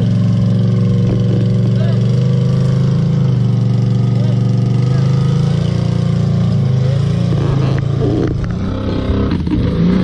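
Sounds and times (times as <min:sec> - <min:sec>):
atv engine running: 0:00.0 - 0:10.0.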